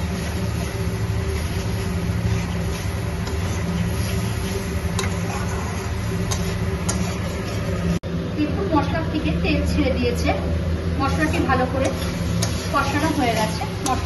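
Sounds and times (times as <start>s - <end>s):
paste sizzling in oil: 0.0s - 8.0s, 11.1s - 14.0s.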